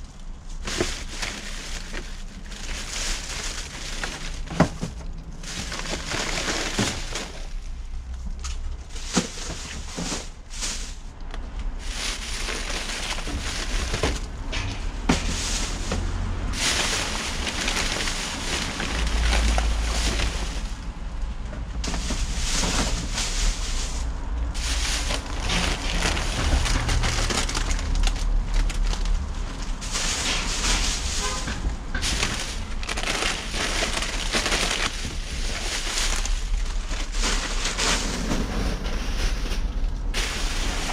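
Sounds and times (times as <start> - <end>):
plastic bags and paper rustling: 0.0 - 40.9
low rumble: 10.3 - 40.9.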